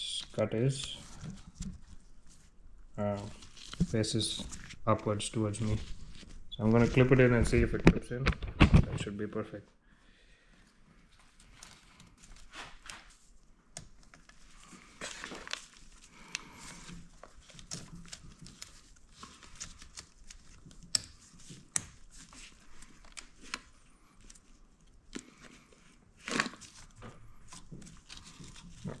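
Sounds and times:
gloved hands rustling: 0:00.2 - 0:07.8.

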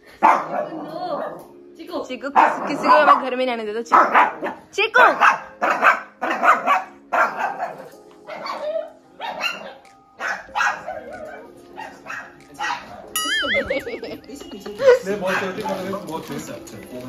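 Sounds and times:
small dog barking: 0:00.2 - 0:01.5, 0:02.3 - 0:03.3, 0:03.9 - 0:13.1.

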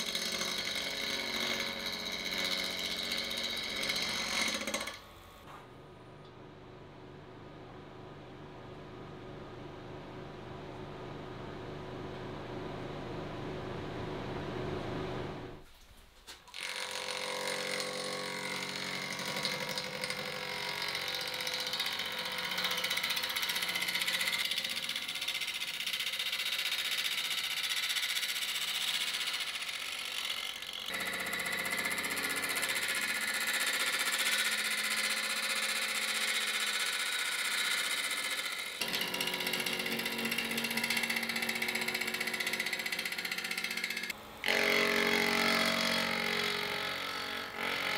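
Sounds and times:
wood lathe hum: 0:00.0 - 0:05.0, 0:16.6 - 0:47.9.

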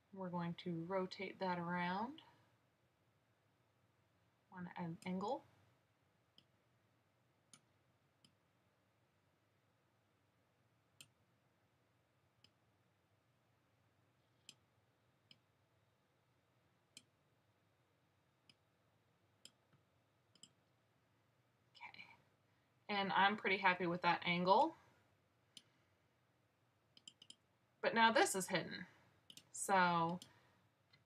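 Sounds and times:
faint computer mouse clicks: 0:27.0 - 0:27.4.

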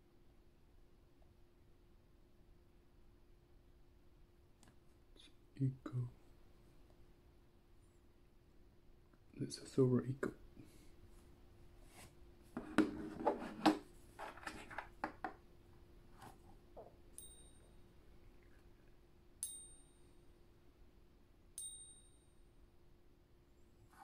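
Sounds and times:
faint steady hum: 0:00.0 - 0:24.0
coin ringing ping: 0:17.2 - 0:17.7, 0:19.4 - 0:20.0, 0:21.6 - 0:22.3.

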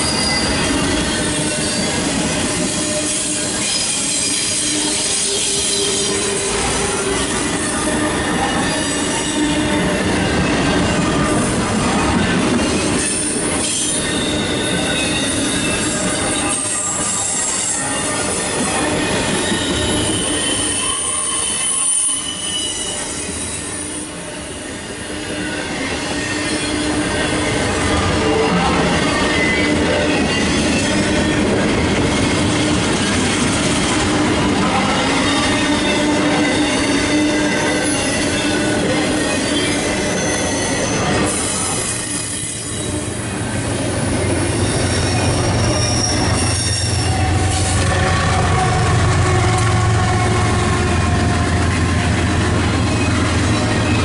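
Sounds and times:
steel wheels rumbling on rails: 0:00.0 - 0:54.0
wheels squealing: 0:12.2 - 0:23.8, 0:35.0 - 0:54.0.

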